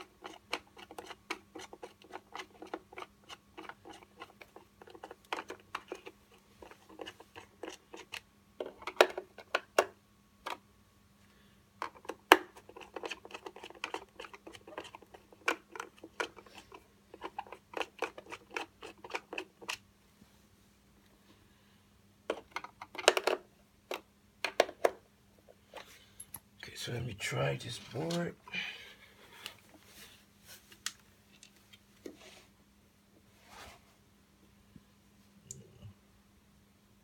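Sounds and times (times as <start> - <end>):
screwdriver clicking and scraping: 11.8 - 19.8.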